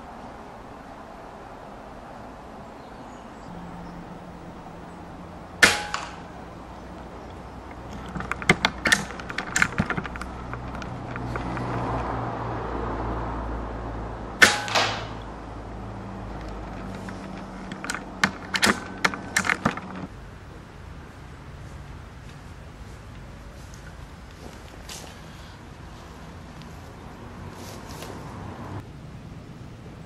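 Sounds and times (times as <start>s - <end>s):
steady low hum: 3.3s - 11.4s
air rifle shots: 5.6s - 6.5s, 14.4s - 15.3s, 18.2s - 20.1s
sharp clicks: 5.6s - 12.1s, 16.3s - 20.1s.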